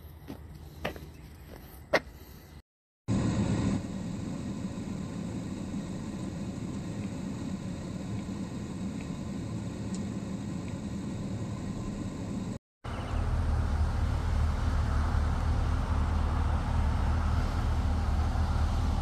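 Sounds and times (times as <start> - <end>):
fire rushing: 13.3 - 19.0.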